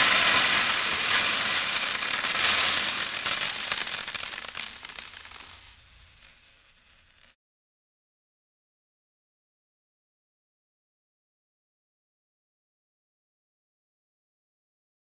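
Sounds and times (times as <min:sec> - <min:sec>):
coins pouring and jingling: 0:00.0 - 0:06.5.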